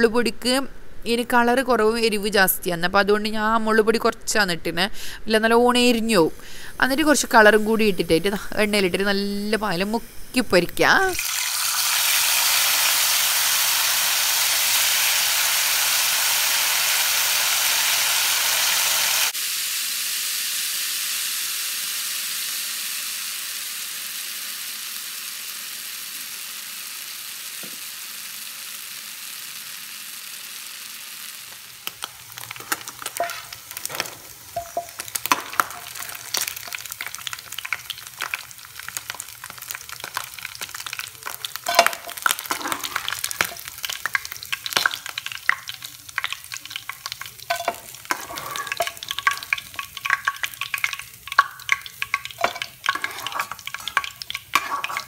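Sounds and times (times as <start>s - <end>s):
meat sizzling in hot oil: 6.4s - 55.0s
spatula scraping a pan: 32.0s - 37.6s, 41.2s - 43.9s, 47.4s - 50.6s, 51.3s - 55.0s.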